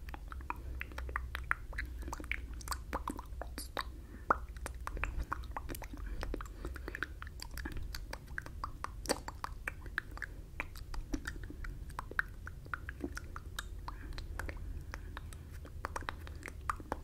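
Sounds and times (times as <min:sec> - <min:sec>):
tongue clicks: 0:00.0 - 0:17.0
wet lip smacks: 0:00.0 - 0:17.0.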